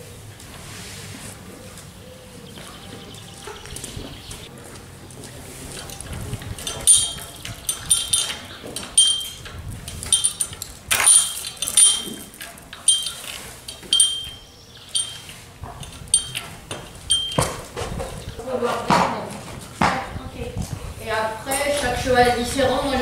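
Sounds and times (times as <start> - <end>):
metal chain clinking: 5.7 - 17.6.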